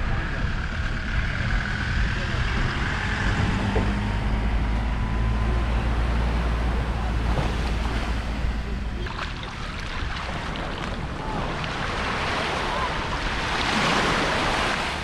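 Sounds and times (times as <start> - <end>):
vehicle engine idling: 0.0 - 12.0
waves breaking: 2.4 - 15.0.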